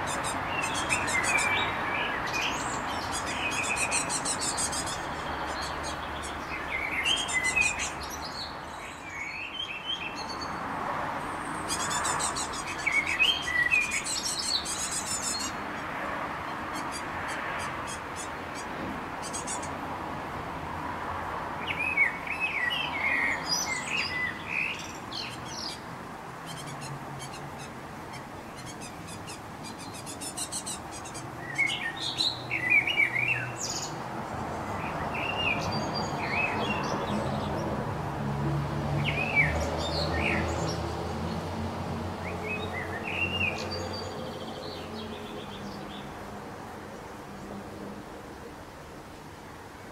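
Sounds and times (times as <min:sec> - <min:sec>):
young birds begging calls: 0:00.0 - 0:08.3, 0:11.5 - 0:19.8, 0:23.3 - 0:33.9.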